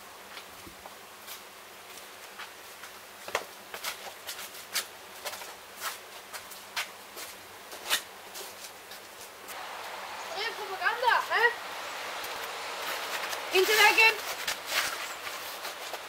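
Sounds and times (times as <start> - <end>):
faint steady hiss: 0.0 - 16.0
footsteps on hard ground: 12.1 - 16.0.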